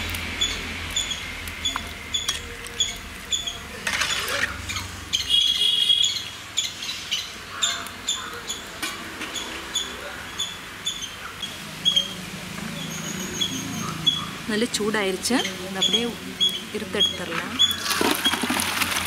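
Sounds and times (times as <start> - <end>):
bird chirping: 0.4 - 18.4
metal ladle scraping in pot: 3.8 - 4.6.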